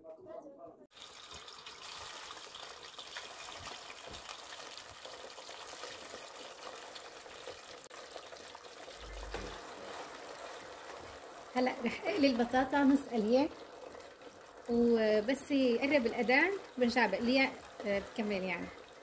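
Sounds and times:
potatoes sizzling in hot oil: 0.9s - 19.0s
slotted spoon stirring fries: 9.5s - 19.0s.

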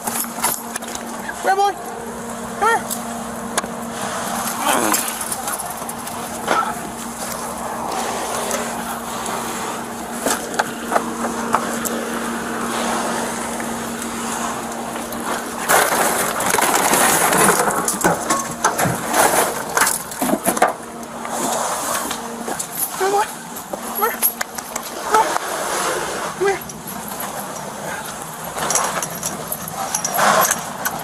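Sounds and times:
dry brush rustling and cracking: 2.9s - 22.9s.

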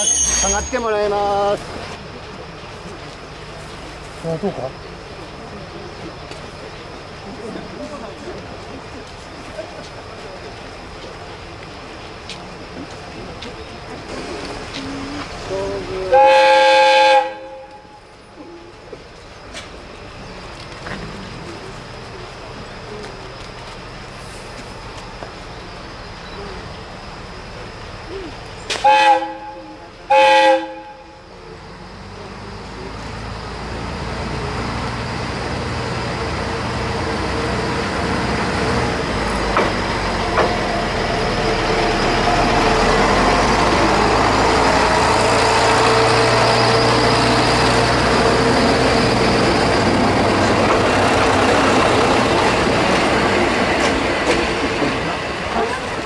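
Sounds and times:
train horn blasts: 16.1s - 18.0s, 28.8s - 31.2s
wheels clacking over rails: 37.1s - 56.0s.

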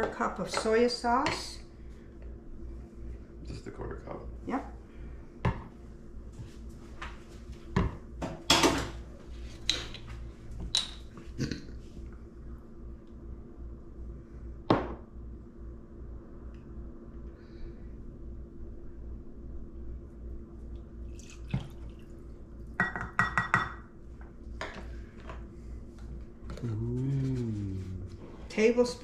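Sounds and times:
faint low hum: 0.0s - 29.0s.

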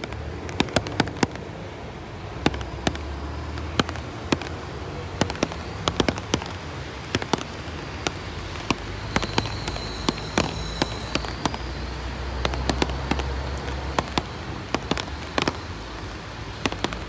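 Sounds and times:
firecrackers cracking: 0.0s - 17.0s.

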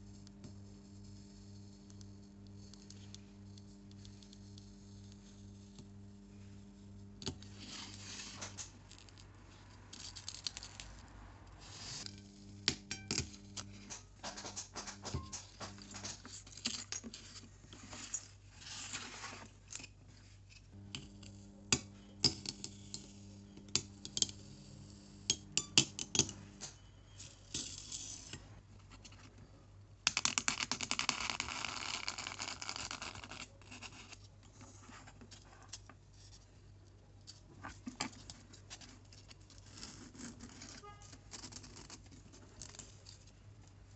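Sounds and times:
faint low hum: 0.0s - 30.1s
foam scratchy rubbing on table: 7.5s - 8.7s, 11.6s - 12.6s, 17.8s - 19.6s.

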